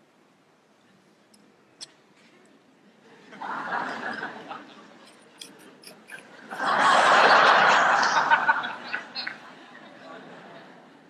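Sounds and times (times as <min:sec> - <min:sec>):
audience laughter: 0:03.0 - 0:05.1, 0:06.1 - 0:11.0.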